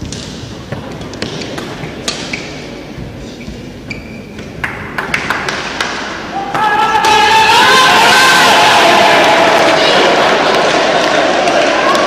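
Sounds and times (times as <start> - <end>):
racquet striking shuttlecock: 0.0 - 2.6
shoes squeaking on court: 0.8 - 4.6.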